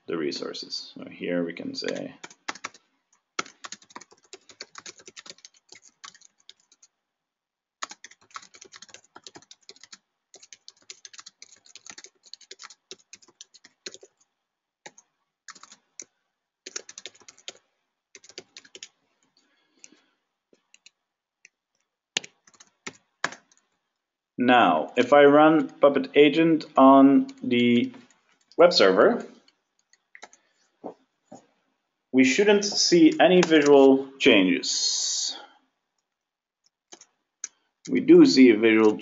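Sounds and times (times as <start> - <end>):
typing on computer keyboard: 1.8 - 6.9, 7.8 - 19.0, 20.6 - 23.7, 29.8 - 30.4, 36.6 - 37.6.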